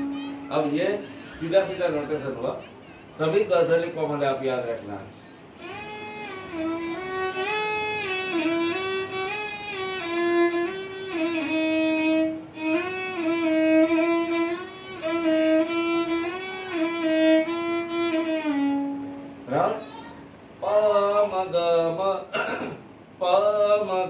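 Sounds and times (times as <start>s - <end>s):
solo violin playing slow melody: 5.6s - 19.9s.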